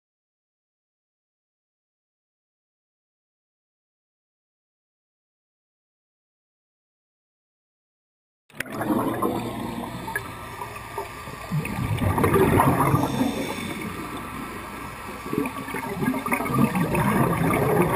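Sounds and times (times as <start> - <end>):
underwater air bubbles gurgling: 8.6 - 17.9.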